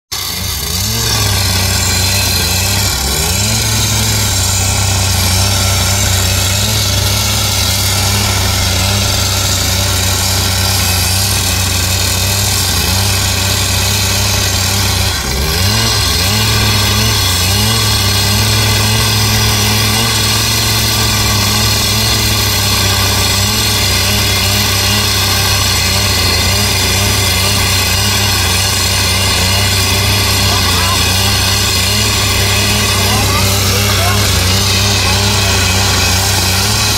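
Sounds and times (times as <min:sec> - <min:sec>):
cut-off saw grinding steel: 0:00.1 - 0:36.9.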